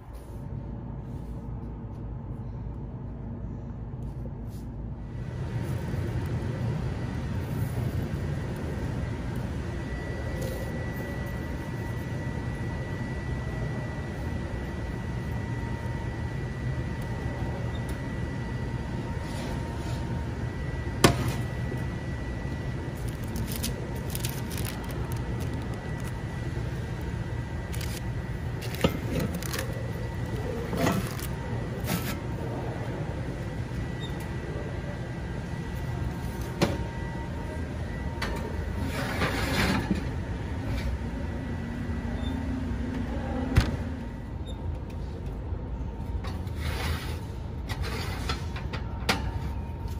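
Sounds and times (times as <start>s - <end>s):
kitchen background rumble: 5.4s - 49.7s.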